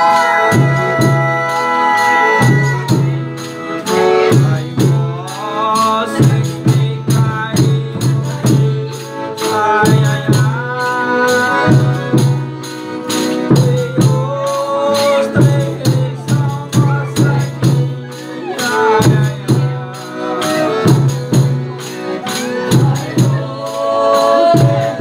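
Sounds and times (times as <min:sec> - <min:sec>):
voices singing folk music: 0:00.0 - 0:25.0.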